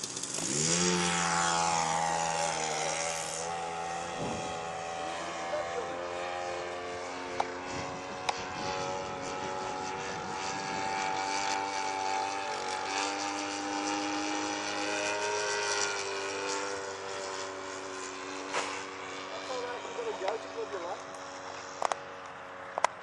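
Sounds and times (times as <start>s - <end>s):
model aeroplane engine droning: 0.0s - 23.0s
wind noise on microphone: 4.1s - 4.7s, 7.1s - 12.1s.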